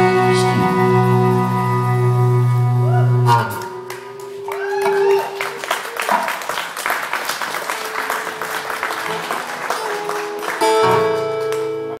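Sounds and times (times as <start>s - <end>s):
audience applause: 3.8s - 12.0s.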